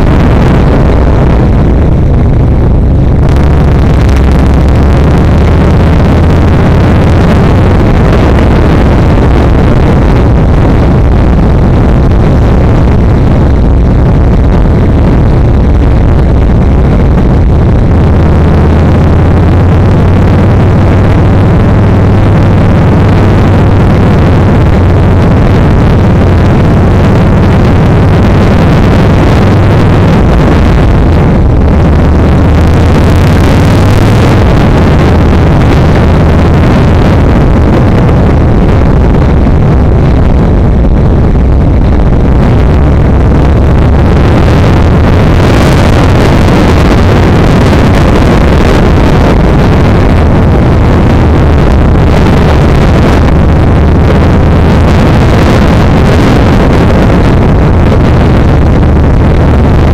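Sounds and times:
motorcycle engine running: 0.0 - 57.9
wind noise: 0.0 - 59.9.

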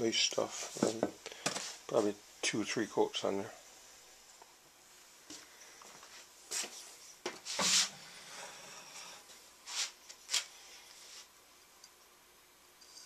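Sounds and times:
paintbrush swishing on wood: 6.5 - 8.0, 9.6 - 11.3.

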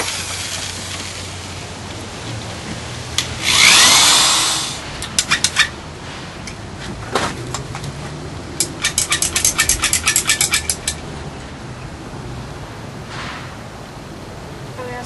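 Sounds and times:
cordless drill driving screw: 3.4 - 5.6
hand tool clicking: 3.4 - 5.7, 8.6 - 11.0.

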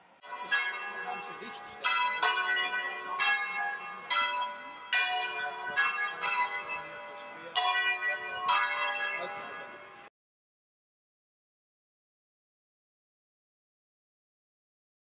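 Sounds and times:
church bells ringing: 0.0 - 10.1.

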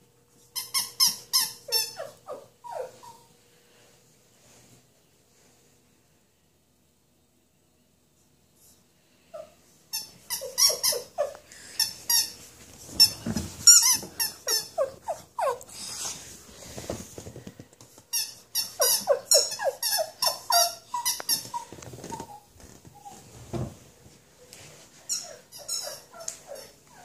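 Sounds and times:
squeaker toy squeaking: 0.6 - 3.2, 9.9 - 12.4, 13.0 - 15.6, 18.1 - 22.3, 25.1 - 26.6.

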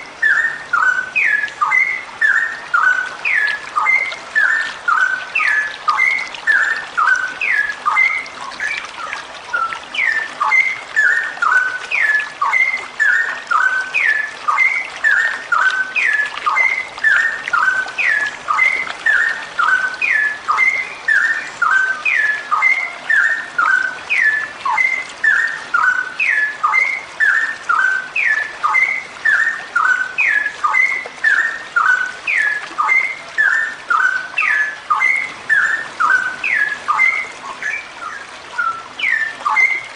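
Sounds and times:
bulbul calling: 0.0 - 39.9.

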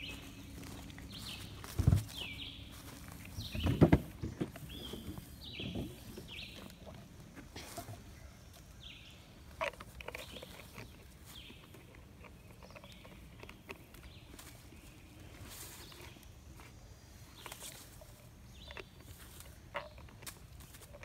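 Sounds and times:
footsteps on leafy ground: 0.0 - 3.6, 13.8 - 21.0
dull thuds: 1.5 - 2.4, 3.4 - 6.5.

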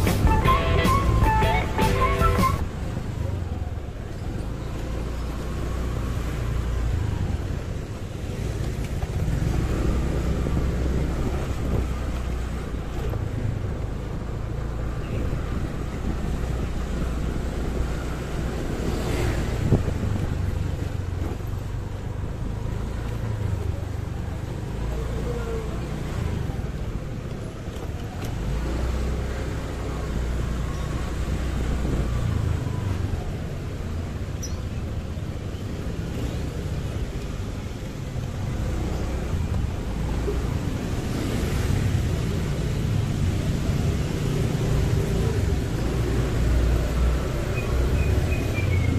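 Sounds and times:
motorcycle engine and road rumble: 0.0 - 48.9
other vehicles: 0.0 - 48.9
wind buffeting microphone: 9.1 - 13.6.

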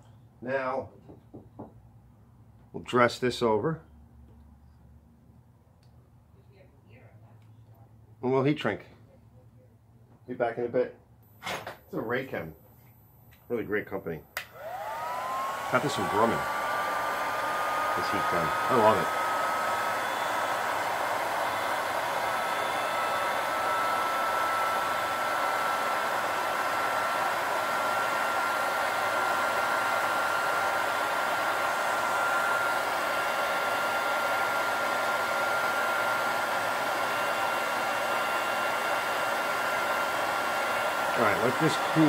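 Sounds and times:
heat gun blowing with whine: 14.4 - 42.0.

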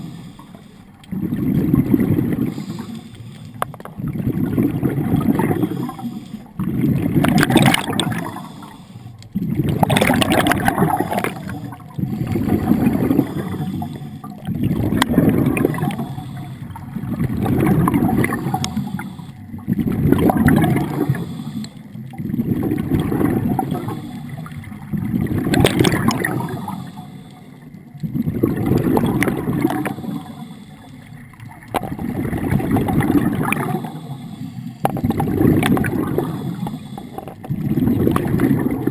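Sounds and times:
scuba regulator breathing bubbles: 0.0 - 38.9.

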